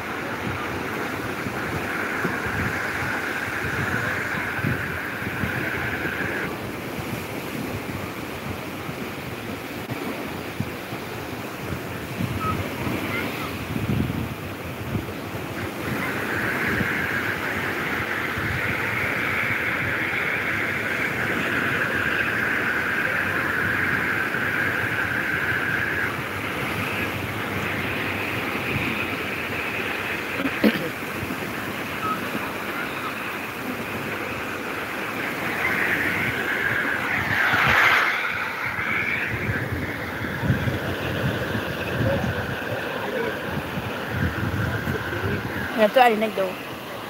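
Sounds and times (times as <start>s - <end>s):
sea waves washing on shore: 0.0s - 47.0s
wind noise on microphone: 0.0s - 47.0s
sweeping wave swell: 15.6s - 47.0s.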